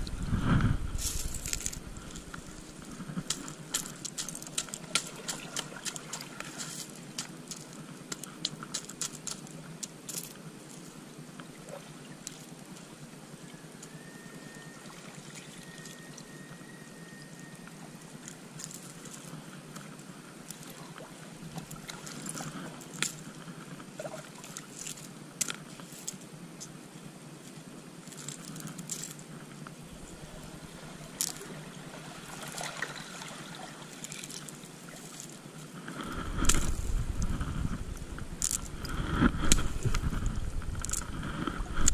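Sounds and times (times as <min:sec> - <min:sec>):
stream water over rocks: 0:00.9 - 0:41.9
faint whistle-like tone: 0:13.4 - 0:18.0.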